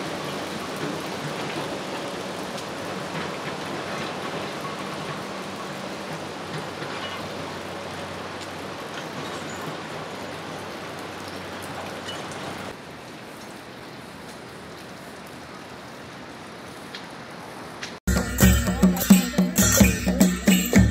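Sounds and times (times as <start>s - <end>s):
river rushing: 0.0s - 18.0s
loud music: 18.1s - 20.9s.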